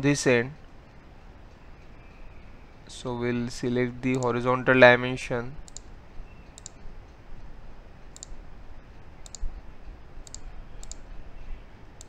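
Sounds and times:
faint background noise: 0:00.0 - 0:12.0
computer mouse clicking: 0:04.1 - 0:04.4, 0:05.7 - 0:06.8, 0:08.1 - 0:08.4, 0:09.2 - 0:09.5, 0:10.2 - 0:11.2.

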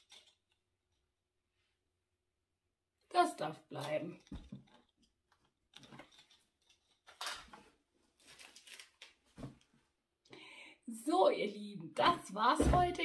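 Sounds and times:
rustling of handled items: 0:03.8 - 0:09.9.

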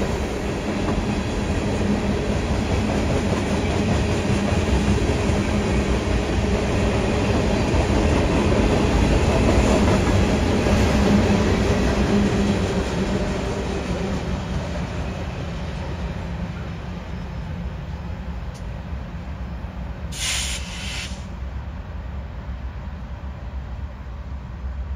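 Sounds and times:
freight train wheels rumbling: 0:00.0 - 0:24.9.

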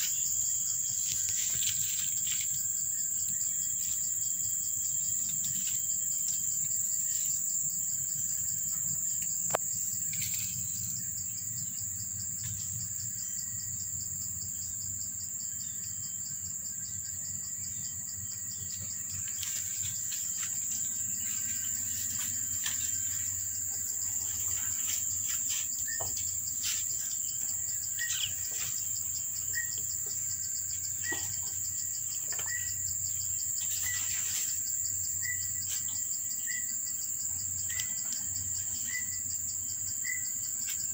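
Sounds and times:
high-pitched insect drone: 0:00.0 - 0:40.9.

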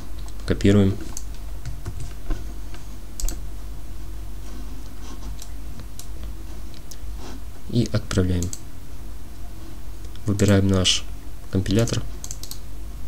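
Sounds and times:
keyboard and mouse clicks: 0:03.2 - 0:03.4, 0:11.5 - 0:12.6.

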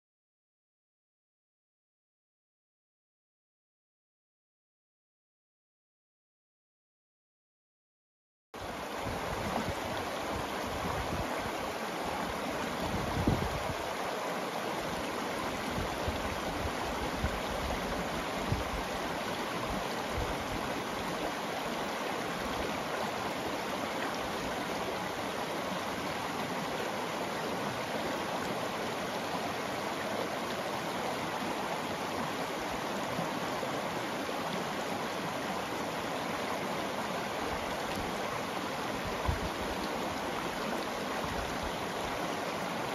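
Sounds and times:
river babbling over cobbles: 0:08.6 - 0:42.9.

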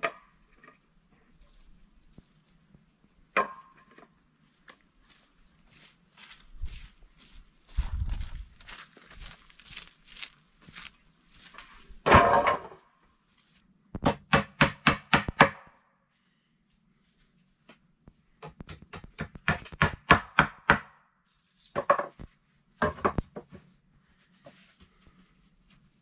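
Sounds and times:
sharp wood-on-wood knocks: 0:14.0 - 0:15.7, 0:18.4 - 0:20.9.

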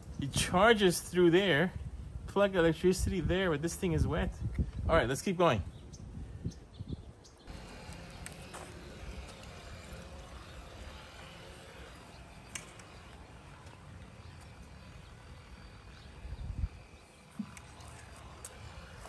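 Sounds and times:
pool vacuum humming underwater: 0:07.5 - 0:19.0.

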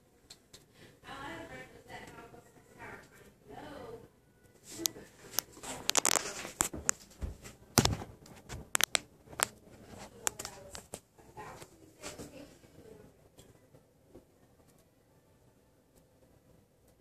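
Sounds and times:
phone handling clicks and rustles: 0:04.8 - 0:07.1, 0:07.8 - 0:11.0.

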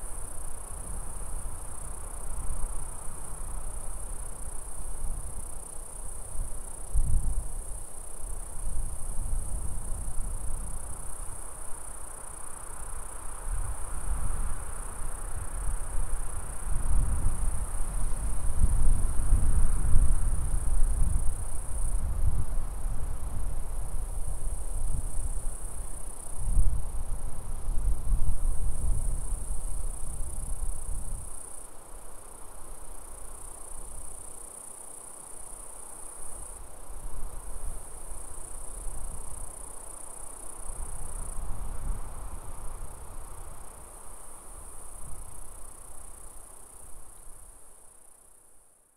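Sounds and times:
wind rumble on microphone: 0:06.4 - 0:07.7, 0:13.4 - 0:31.4
insect chorus trilling: 0:23.9 - 0:48.4.

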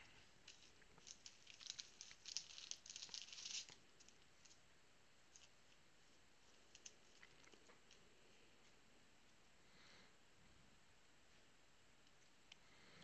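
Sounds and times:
trading cards crinkling and clicking: 0:00.0 - 0:04.6, 0:06.6 - 0:08.0.

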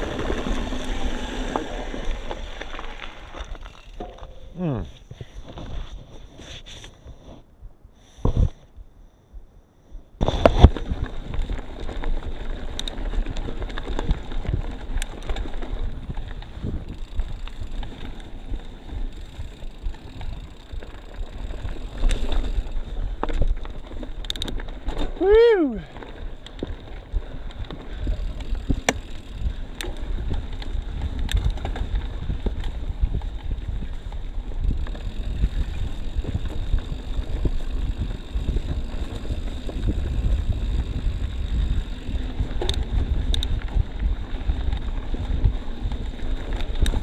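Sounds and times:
bike rumbling and rattling: 0:00.0 - 0:07.5, 0:09.7 - 0:47.0
wind on microphone: 0:27.1 - 0:47.0.

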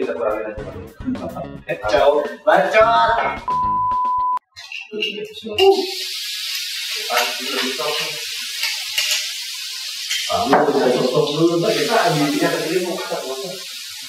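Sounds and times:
chili paste sizzling in a wok: 0:05.6 - 0:14.0.

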